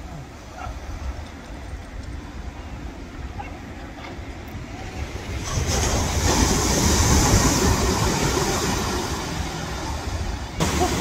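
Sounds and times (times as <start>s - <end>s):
ocean surf rushing: 0.0s - 11.0s
wind buffeting the microphone: 0.3s - 11.0s.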